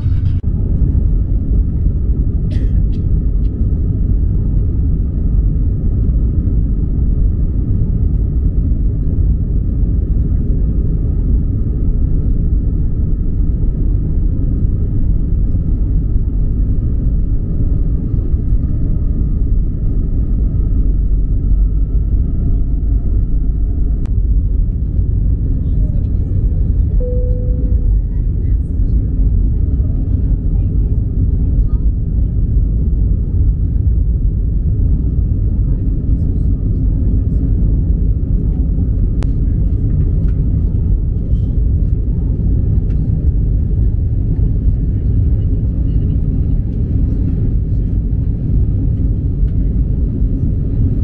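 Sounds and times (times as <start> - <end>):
car road and engine rumble: 0.0 - 51.0
faint steady whine: 12.1 - 51.0.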